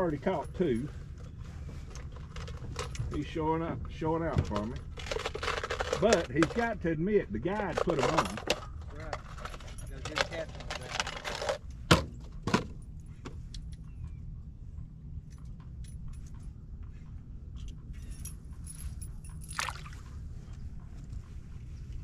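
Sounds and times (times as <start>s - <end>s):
steady low rumble: 0.0s - 22.0s
faint clinks: 17.6s - 20.2s.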